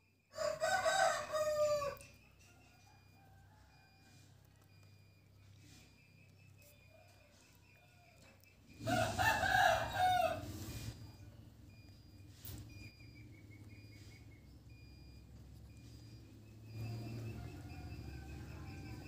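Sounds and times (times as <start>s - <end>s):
rooster crowing: 0.3s - 4.8s, 6.8s - 10.9s, 16.0s - 19.0s.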